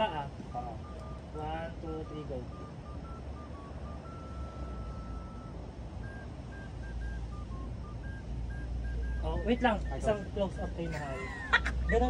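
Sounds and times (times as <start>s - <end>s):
low steady rumble: 0.0s - 12.0s
short electronic beeps: 0.0s - 12.0s.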